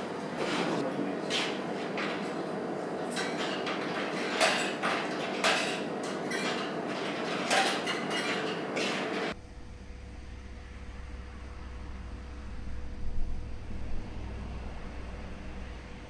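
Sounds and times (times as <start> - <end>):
room hum: 0.0 - 16.0
tableware clinking: 3.1 - 8.9
low rumble: 9.4 - 16.0.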